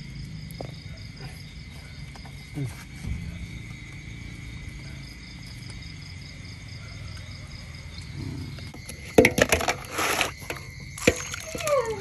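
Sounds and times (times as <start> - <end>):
crickets trilling: 0.0 - 12.0
sharp knocks and clatter: 8.8 - 11.4.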